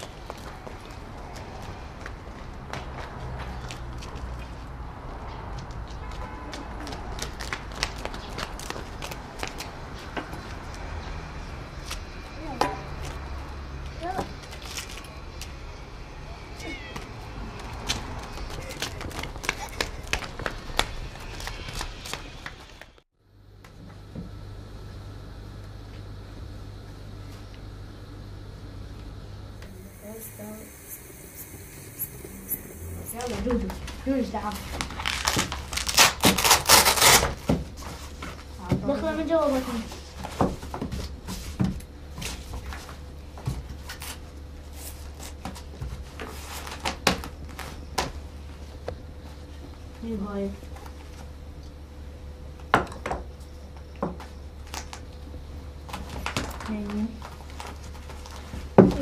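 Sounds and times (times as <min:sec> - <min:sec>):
faint steady hum: 0:23.2 - 0:34.2.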